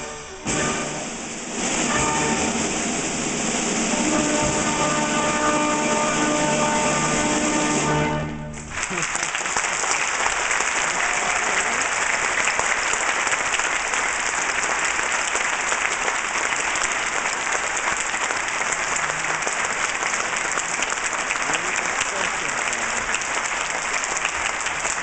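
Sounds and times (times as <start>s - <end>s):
audience applauding: 8.6s - 25.0s.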